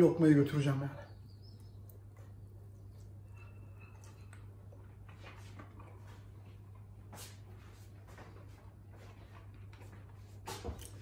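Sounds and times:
steady low hum: 0.0 - 11.0
man chewing: 1.7 - 7.1.

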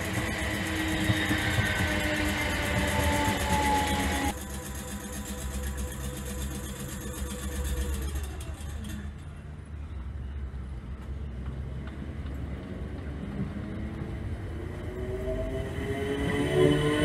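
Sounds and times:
traction motor whine: 0.0 - 9.2
train wheels rumbling on rail: 0.0 - 9.7.

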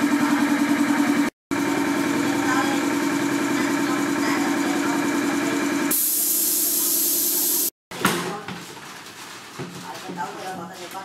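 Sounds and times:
steady mechanical drone: 0.0 - 5.9
loud hiss of spray: 5.9 - 7.7.

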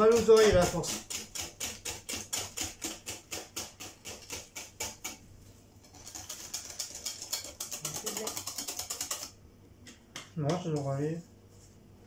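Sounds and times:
whisk beating batter in glass bowl: 0.0 - 9.4.

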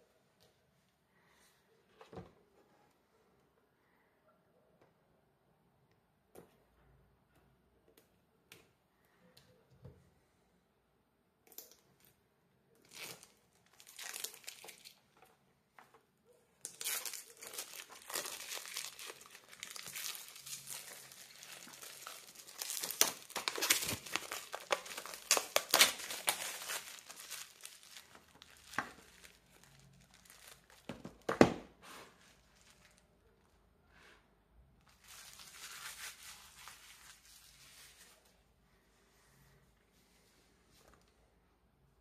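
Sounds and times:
plastic wrap crinkling: 12.8 - 15.1, 16.6 - 31.5, 32.1 - 33.5, 34.9 - 38.1.

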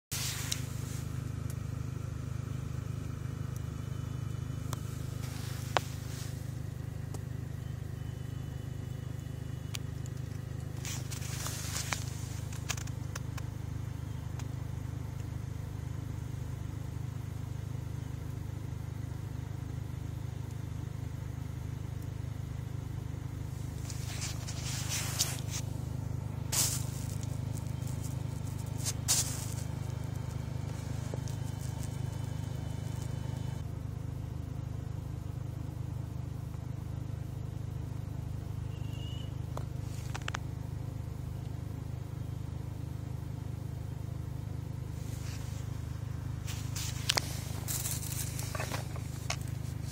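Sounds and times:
steady low rumble: 0.1 - 38.7, 39.4 - 49.9
packaging scraping and rustling: 10.8 - 12.9, 23.8 - 25.7, 26.5 - 33.2, 46.4 - 49.9.

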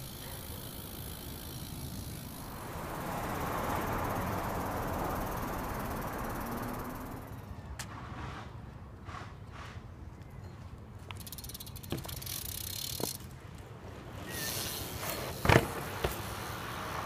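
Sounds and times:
bike tyres rolling on pavement: 0.0 - 7.4, 11.0 - 17.0.

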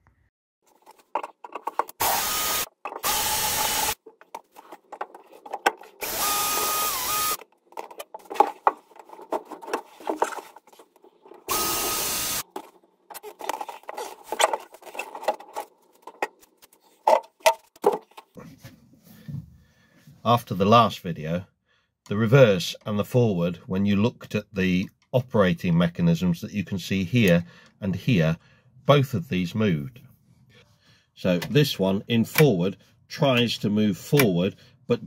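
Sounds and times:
clicks and knocks of handling: 0.7 - 2.0, 4.0 - 6.0, 7.4 - 11.5, 12.4 - 18.4
cordless drill running: 2.0 - 4.0, 6.0 - 7.4, 11.5 - 12.4.

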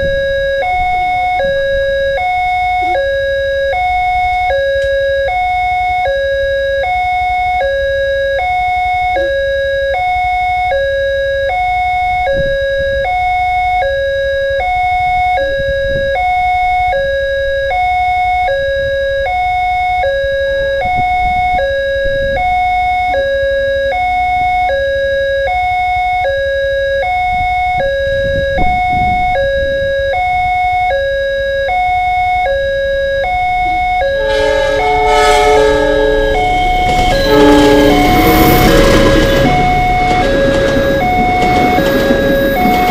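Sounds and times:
two-tone crossing alarm: 0.0 - 42.9
low rumble: 34.2 - 42.9.

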